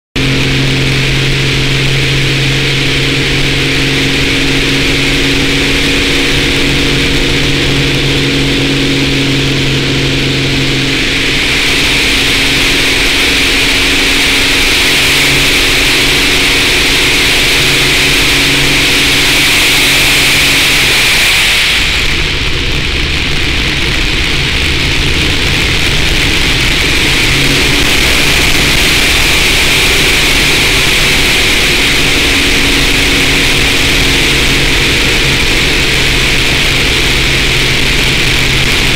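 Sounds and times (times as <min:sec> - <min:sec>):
propeller plane engine: 0:00.0 - 0:38.9
wind rush: 0:00.2 - 0:38.9.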